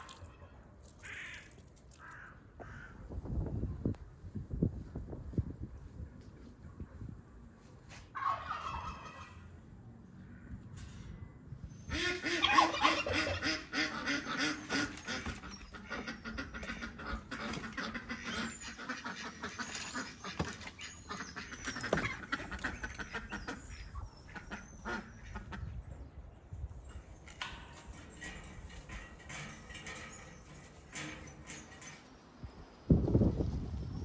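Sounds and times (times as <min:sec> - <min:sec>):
ducks quacking: 0:11.9 - 0:25.8.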